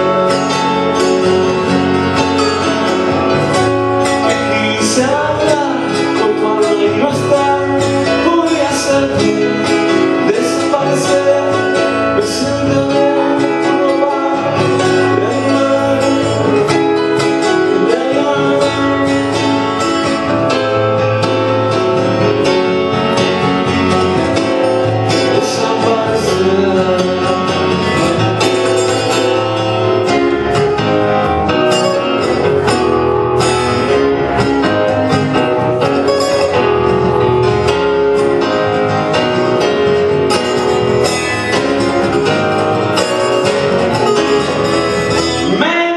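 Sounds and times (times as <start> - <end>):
strummed acoustic guitar: 0.0 - 45.9
man singing: 4.0 - 20.2, 24.8 - 30.2, 42.2 - 45.9.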